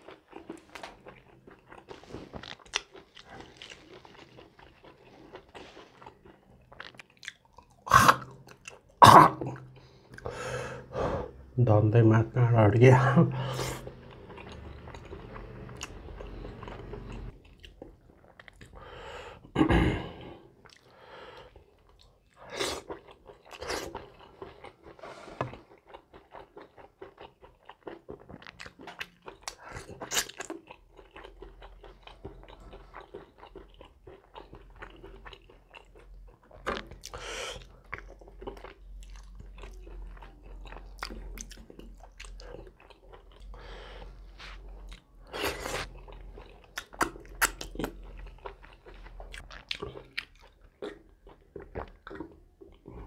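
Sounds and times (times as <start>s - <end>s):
person chewing food: 0.0s - 11.4s, 13.3s - 53.0s.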